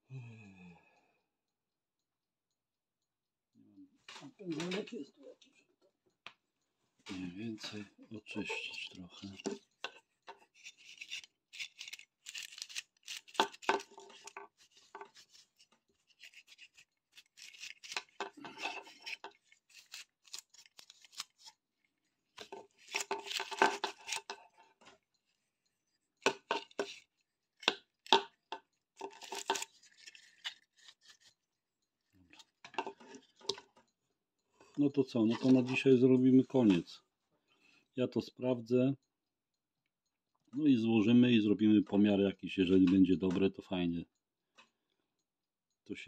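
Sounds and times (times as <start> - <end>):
brushing and scraping strokes: 13.2 - 21.6.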